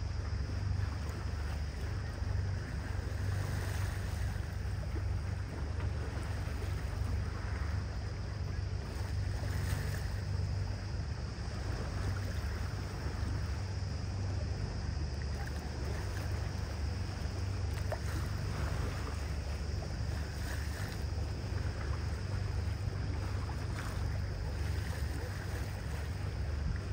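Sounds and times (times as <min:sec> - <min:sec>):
boat engine drone: 0:00.0 - 0:26.9
water rushing along hull: 0:00.0 - 0:26.9.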